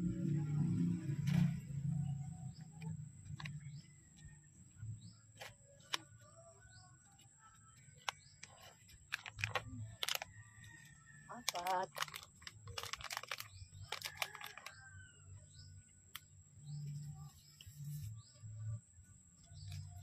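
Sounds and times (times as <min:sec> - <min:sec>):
hands rustling soil and pot: 0:05.3 - 0:15.0.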